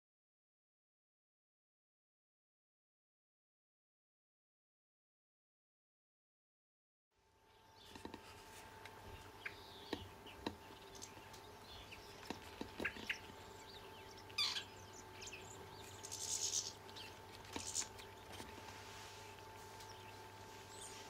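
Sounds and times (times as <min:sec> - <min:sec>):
faint steady hum: 0:07.2 - 0:21.0
birds chirping: 0:07.5 - 0:21.0.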